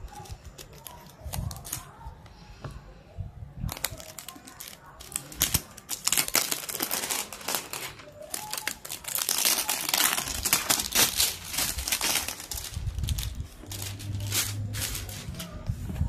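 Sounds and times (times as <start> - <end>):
plastic bag crinkling: 3.6 - 16.0.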